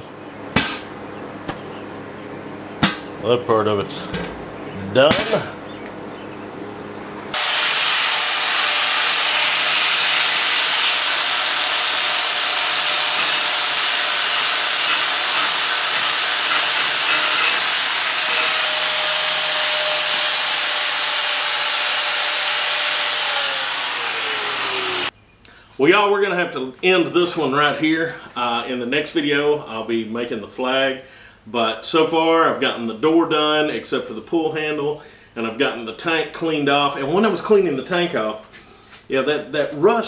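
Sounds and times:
angle grinder grinding metal: 0:07.3 - 0:25.1.

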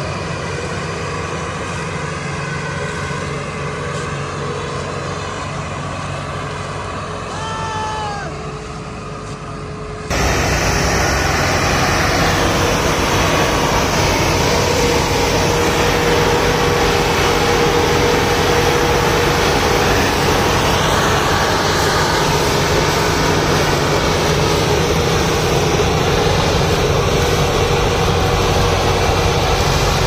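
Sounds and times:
tractor diesel engine straining: 0:08.4 - 0:30.0.

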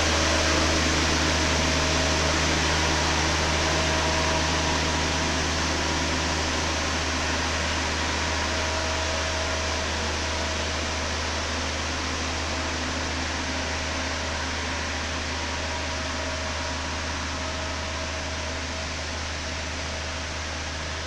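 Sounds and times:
sprayer machine hum: 0:00.0 - 0:21.0.

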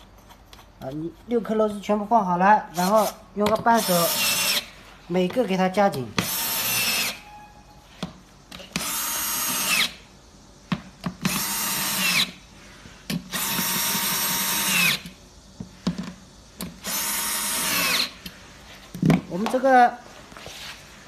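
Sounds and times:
cordless drill driving screws: 0:03.8 - 0:04.7, 0:06.2 - 0:07.2, 0:08.8 - 0:10.0, 0:11.3 - 0:12.3, 0:13.3 - 0:15.0, 0:16.8 - 0:18.1.

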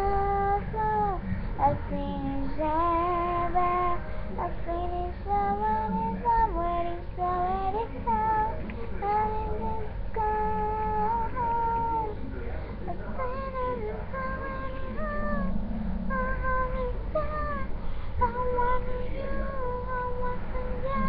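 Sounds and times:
high voice singing: 0:13.1 - 0:21.0.

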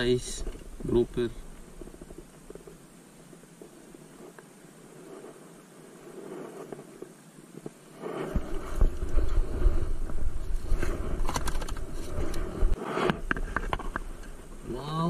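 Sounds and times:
wind rumbling on microphone: 0:00.0 - 0:14.9.

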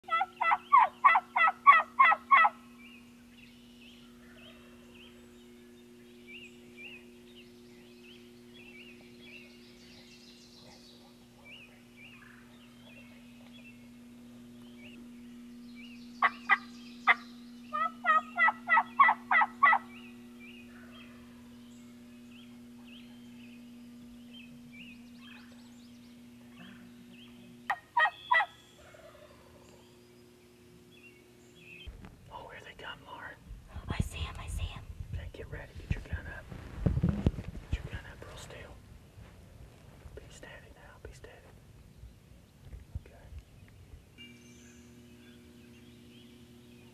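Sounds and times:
turkey gobbling: 0:00.0 - 0:02.6, 0:16.2 - 0:20.0, 0:27.7 - 0:29.7
faint songbird chirps: 0:00.0 - 0:36.4, 0:37.7 - 0:38.8, 0:40.2 - 0:46.9
steady low hum: 0:00.0 - 0:46.9.

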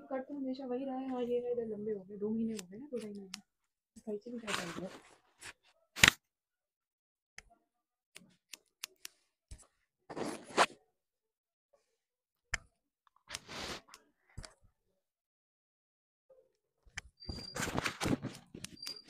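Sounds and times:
scissors snipping hair: 0:02.5 - 0:03.4.

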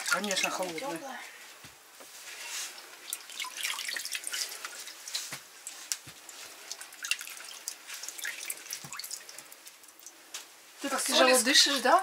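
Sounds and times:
brine splashing and sloshing: 0:00.0 - 0:01.2, 0:02.7 - 0:10.1.

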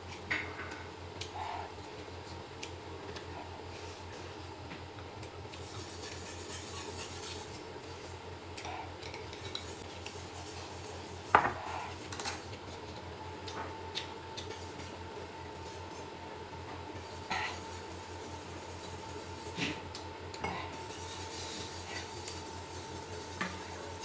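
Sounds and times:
chopsticks scraping a glass bowl: 0:05.7 - 0:07.5, 0:17.3 - 0:17.7.

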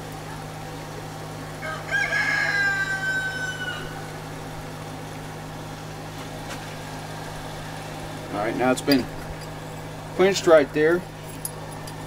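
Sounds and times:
forge blower humming: 0:00.0 - 0:12.0
rooster crowing: 0:01.6 - 0:04.5.

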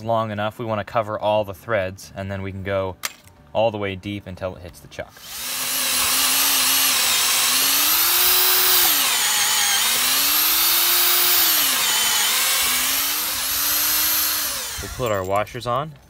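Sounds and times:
cordless drill boring into wood: 0:05.1 - 0:15.4.

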